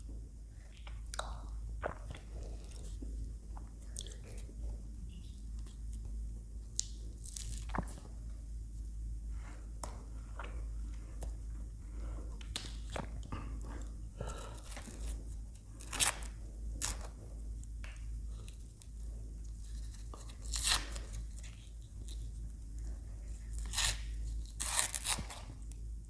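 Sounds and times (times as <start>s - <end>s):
crunchy bites and chewing: 0.6s - 4.6s, 5.4s - 8.2s, 12.4s - 25.9s
small crackles: 0.6s - 8.3s.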